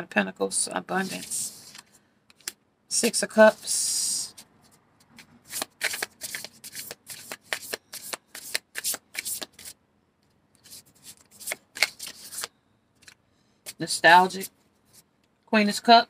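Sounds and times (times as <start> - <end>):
cards being shuffled: 1.0 - 2.6, 4.3 - 9.8, 10.6 - 15.0.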